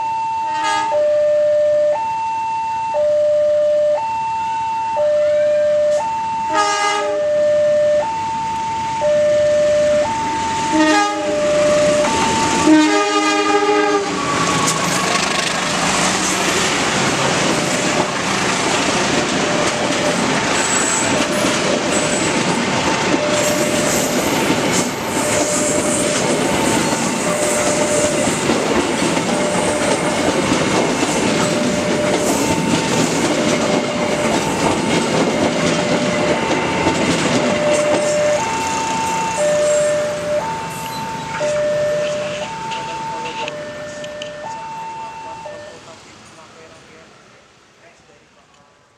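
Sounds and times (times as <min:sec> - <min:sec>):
level-crossing warning siren: 0:00.0 - 0:46.1
train horn: 0:00.5 - 0:01.4, 0:05.2 - 0:07.8, 0:10.6 - 0:15.1, 0:25.1 - 0:26.2
train wheels clattering over rails: 0:13.8 - 0:39.1.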